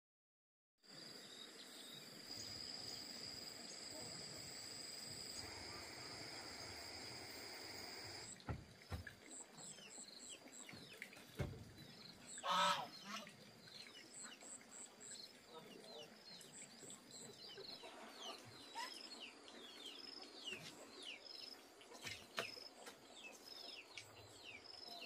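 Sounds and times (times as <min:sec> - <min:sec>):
faint hiss: 0:00.9 - 0:13.8
fowl honking call: 0:12.4 - 0:13.2.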